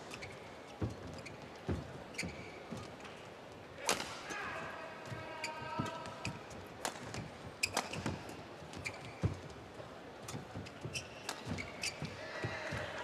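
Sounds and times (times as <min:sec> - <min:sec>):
shoes squeaking on court: 0:00.0 - 0:03.4, 0:05.1 - 0:13.0
racket striking shuttlecock: 0:06.8 - 0:08.2.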